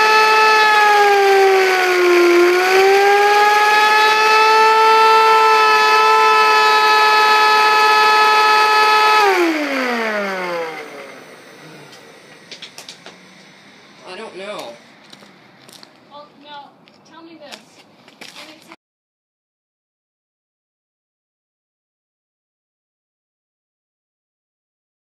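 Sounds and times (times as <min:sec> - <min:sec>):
motor winding down: 0:00.0 - 0:16.0
motor spinning disc whine: 0:00.0 - 0:16.1.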